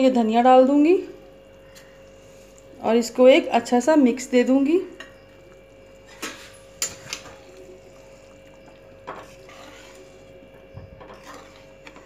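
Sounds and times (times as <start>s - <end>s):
faint steady hum: 0.0s - 12.0s
spoon stirring thick curry: 5.5s - 12.0s.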